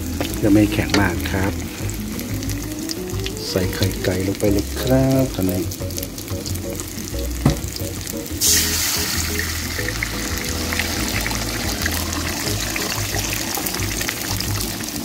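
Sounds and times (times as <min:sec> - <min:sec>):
eggs sizzling in hot oil: 0:00.0 - 0:15.0
sharp knock: 0:07.4 - 0:07.8.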